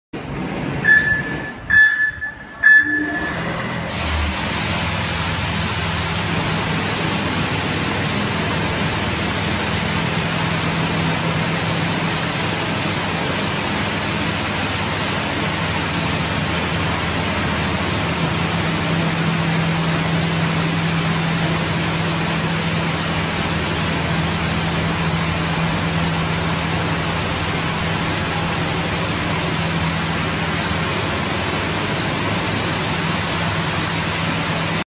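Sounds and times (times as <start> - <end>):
high-pressure water jets hissing: 0.2 - 34.8
low pump hum: 0.2 - 34.8
short electronic beeps: 0.8 - 3.8.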